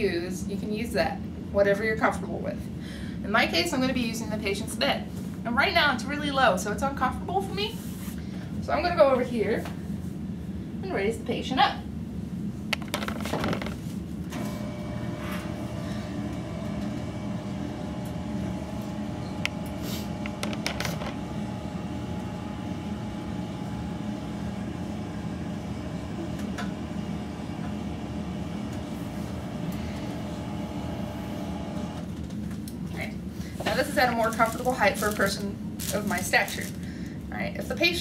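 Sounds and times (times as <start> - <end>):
bed lift motor humming: 12.8 - 32.4.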